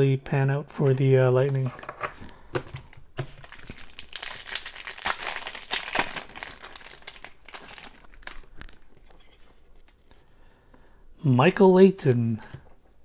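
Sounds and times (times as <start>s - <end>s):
foil wrapper crinkling: 2.7s - 10.0s.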